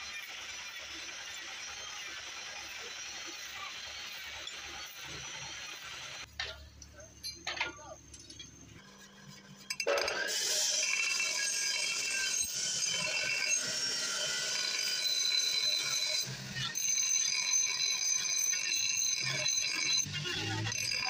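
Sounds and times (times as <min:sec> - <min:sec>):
grinder wheel grinding steel: 0:08.3 - 0:21.0.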